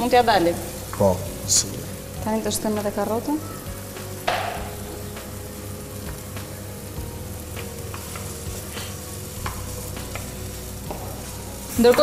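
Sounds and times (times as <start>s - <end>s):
vegetables sizzling in a frying pan: 0.0s - 12.0s
wooden spoon knocking a pan: 4.2s - 4.8s.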